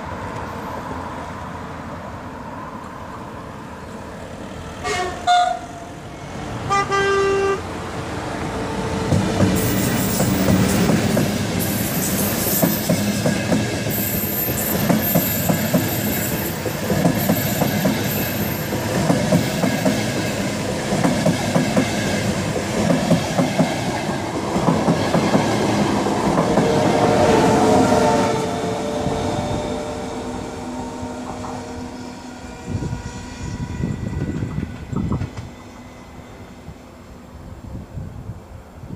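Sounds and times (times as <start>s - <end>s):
train horn blasts: 4.8s - 6.0s, 6.6s - 7.7s, 26.4s - 34.6s
train wheels clattering on rails: 8.9s - 27.0s, 34.1s - 35.9s.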